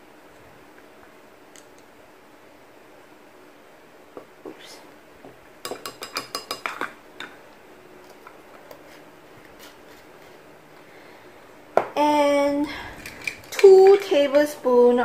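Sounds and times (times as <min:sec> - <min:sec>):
spoon clinking against ceramic bowl: 0:05.6 - 0:06.9.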